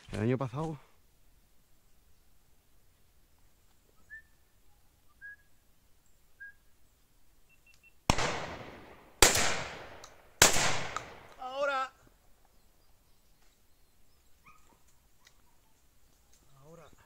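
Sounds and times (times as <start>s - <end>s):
faint bird chirps: 3.3s - 8.1s, 12.4s - 17.0s
shotgun shots: 8.1s - 11.4s.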